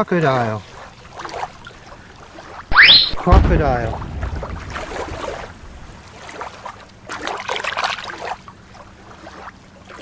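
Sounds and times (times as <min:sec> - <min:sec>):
shallow water splashing: 0:00.5 - 0:10.0.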